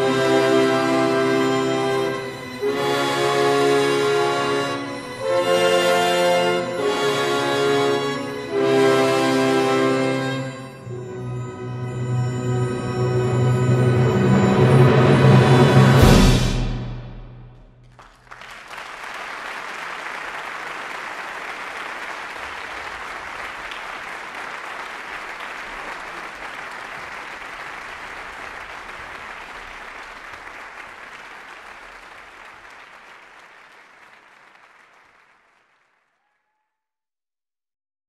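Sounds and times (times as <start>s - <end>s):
audience applauding: 17.8s - 36.5s.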